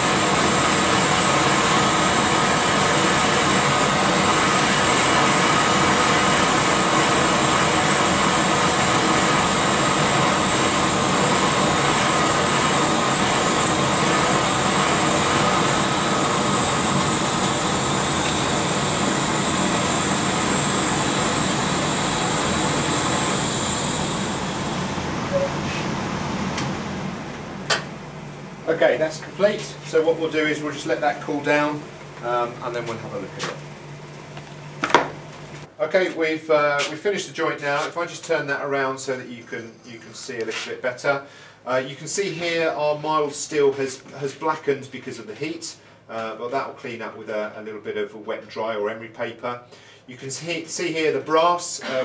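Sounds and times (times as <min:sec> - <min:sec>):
gas torch hissing: 0:00.0 - 0:28.0
extraction fans running: 0:00.0 - 0:52.0.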